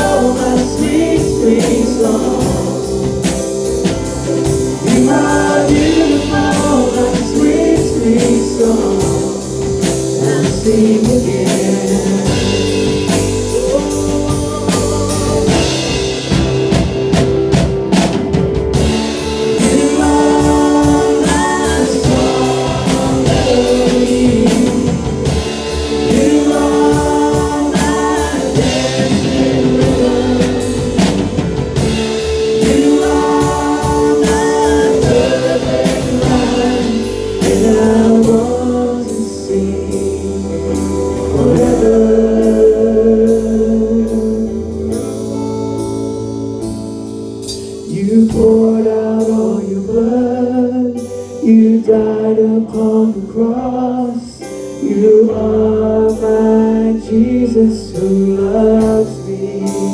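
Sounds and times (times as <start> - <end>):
voices singing: 0.0 - 16.2, 19.0 - 44.6
drum kit: 0.0 - 53.6, 54.3 - 59.9
electric guitars: 0.0 - 59.9
keyboard: 0.0 - 59.9.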